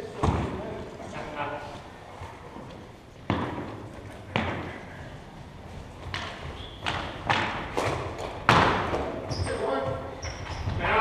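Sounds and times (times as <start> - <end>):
hockey sticks knocking ball: 3.2 - 4.8, 6.0 - 9.4.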